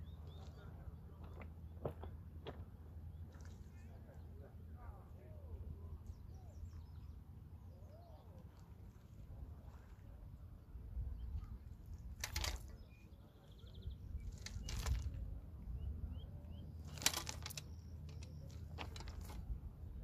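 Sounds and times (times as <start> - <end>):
low steady rumble: 0.0 - 20.0
short rustling noises: 16.8 - 19.4.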